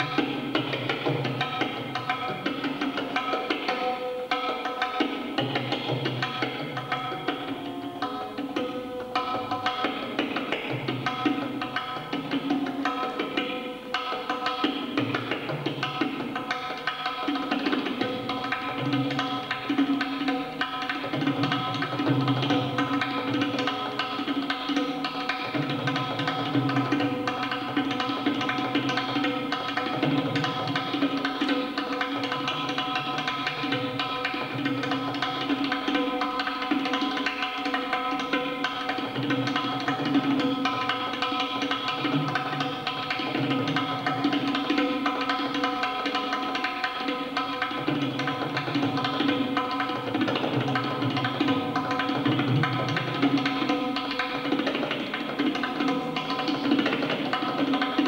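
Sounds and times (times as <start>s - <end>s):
tabla solo: 0.0s - 58.0s
harmonium playing: 7.3s - 9.6s.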